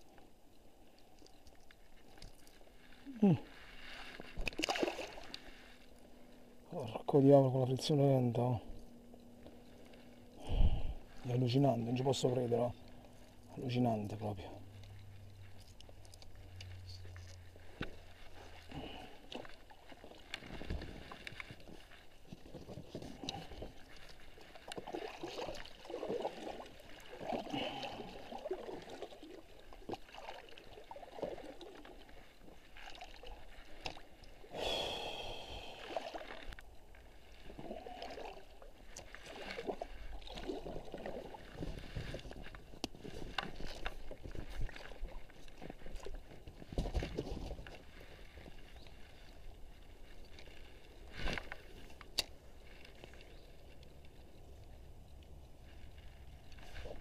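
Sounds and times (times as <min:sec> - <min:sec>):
paddle strokes in water: 0:00.0 - 0:06.6, 0:14.4 - 0:55.0.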